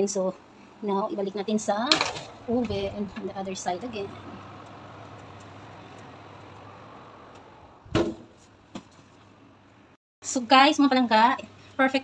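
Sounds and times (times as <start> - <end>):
oven door thump: 7.9 - 8.3.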